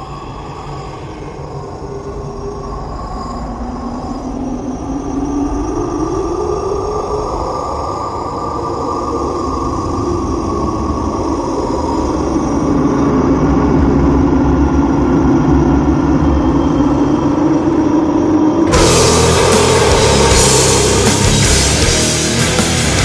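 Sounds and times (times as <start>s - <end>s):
droning doom metal intro: 16.6s - 23.0s.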